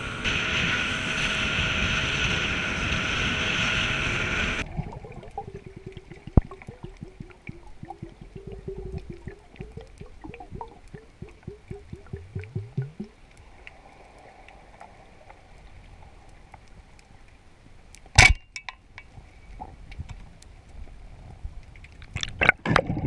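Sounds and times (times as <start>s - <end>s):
rushing water: 0.0s - 16.5s
underwater gurgling: 0.0s - 16.8s, 20.8s - 23.0s
small clicks underwater: 5.1s - 23.0s.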